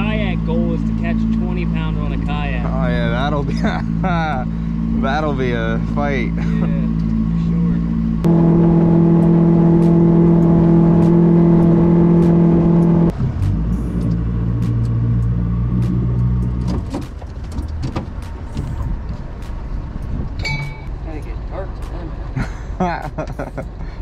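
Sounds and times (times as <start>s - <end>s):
outboard motor running: 0.0s - 13.1s.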